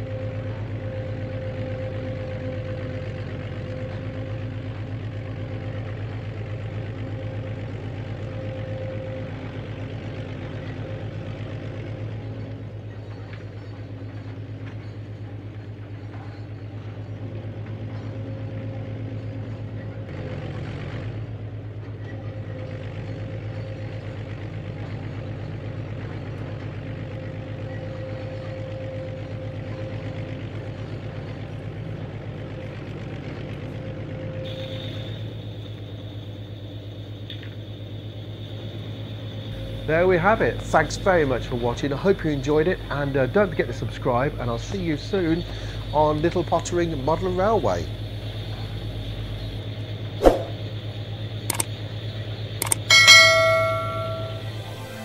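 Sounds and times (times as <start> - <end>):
recorded engine hum: 0.0 - 55.0
higher engine tone: 32.9 - 55.0.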